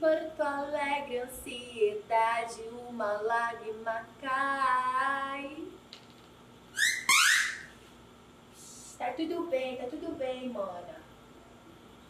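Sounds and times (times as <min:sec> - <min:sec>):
woman squealing: 0:06.8 - 0:07.7.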